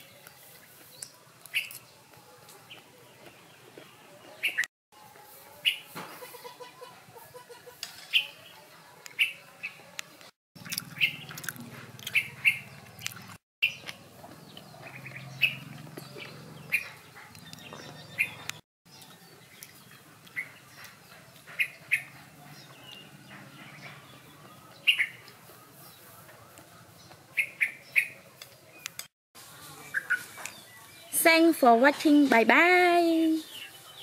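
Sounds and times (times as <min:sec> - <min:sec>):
small birds chirping: 0:00.0 - 0:04.7, 0:05.6 - 0:34.0.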